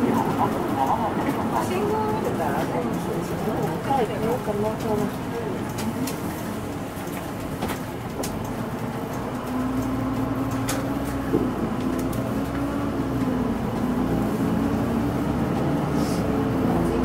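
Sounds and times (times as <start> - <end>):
clicks and rattles in cabin: 0.0 - 12.6
bus diesel engine humming: 0.0 - 17.0.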